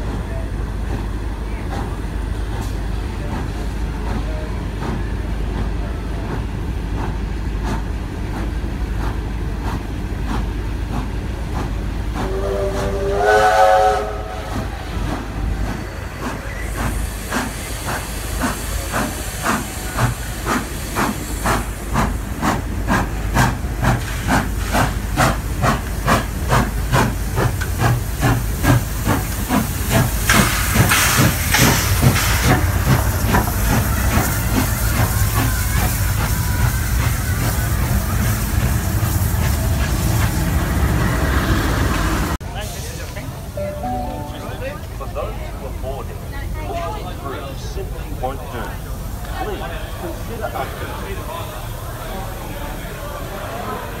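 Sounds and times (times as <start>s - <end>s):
steam hiss: 9.0s - 43.2s
steam locomotive whistle: 12.2s - 14.6s.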